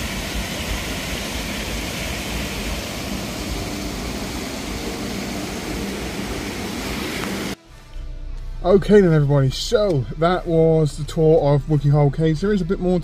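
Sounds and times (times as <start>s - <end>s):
river water pouring over weir: 0.0s - 7.6s.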